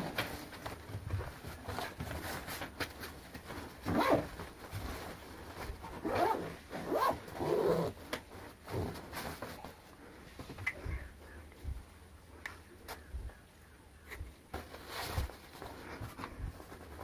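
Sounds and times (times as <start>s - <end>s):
bag fabric rustling: 0.0s - 10.1s
zipper being pulled: 3.8s - 4.4s, 5.8s - 8.1s.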